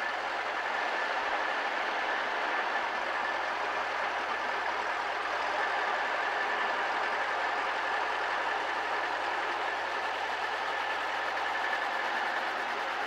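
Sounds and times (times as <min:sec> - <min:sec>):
helicopter engine and rotor drone: 0:00.0 - 0:13.0.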